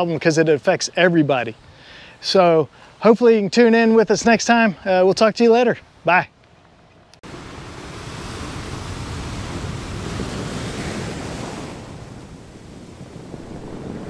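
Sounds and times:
ocean waves washing: 7.2 - 14.0.

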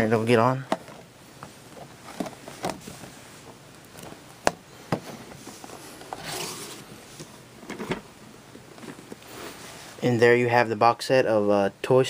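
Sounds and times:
cardboard rubbing and scraping: 5.3 - 7.0.

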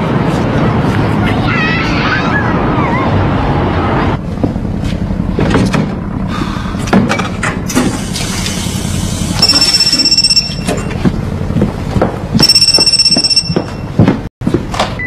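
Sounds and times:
telephone ringing: 9.4 - 11.0, 12.4 - 13.9.

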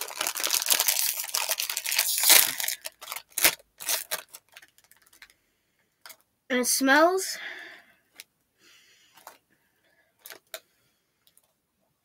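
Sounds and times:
chip bag tearing and crinkling: 0.0 - 5.3.

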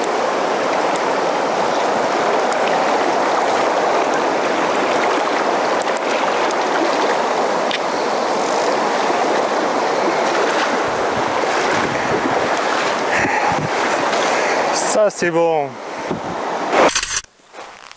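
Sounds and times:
river rushing over rocks: 0.0 - 16.8
waders splashing through water: 0.6 - 14.8.

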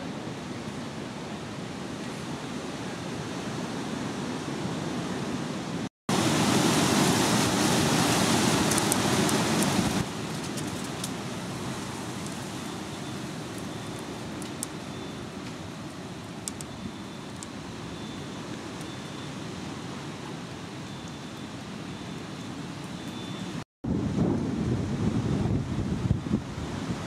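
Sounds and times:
steady rushing outdoor noise: 0.0 - 27.0
faint ticks: 16.4 - 17.5.

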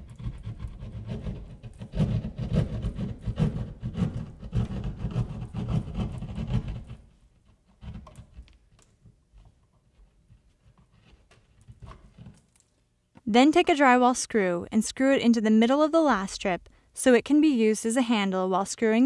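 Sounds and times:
hand saw cutting drywall: 0.0 - 12.4.

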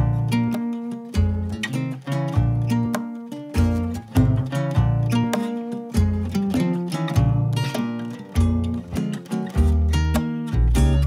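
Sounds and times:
plucked string instrument music: 0.0 - 11.0
deep bass notes: 3.6 - 5.3, 7.2 - 7.7, 8.4 - 11.0.

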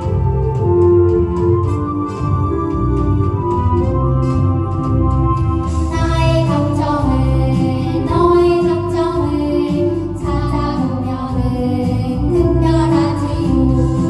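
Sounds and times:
instrumental accompaniment: 0.0 - 14.0
children singing into microphones: 5.9 - 14.0.

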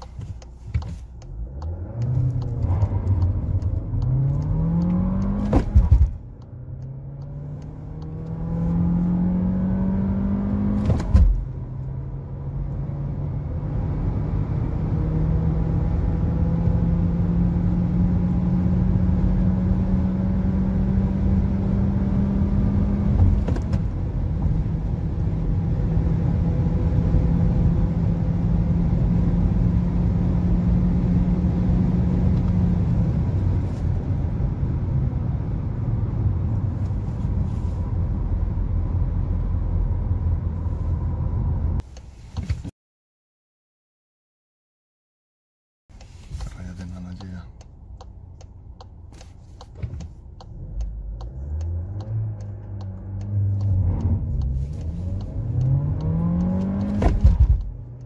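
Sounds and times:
gear upshift thump: 0.0 - 3.5, 4.1 - 6.5, 10.6 - 11.6, 23.0 - 24.6, 49.1 - 50.2, 53.3 - 57.8
car engine accelerating: 0.0 - 41.9, 45.9 - 58.0.

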